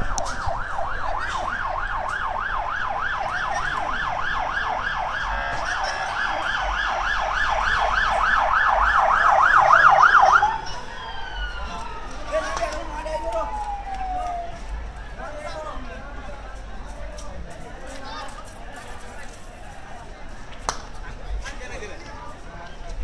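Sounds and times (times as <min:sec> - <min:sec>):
emergency siren yelping: 0:00.0 - 0:15.2.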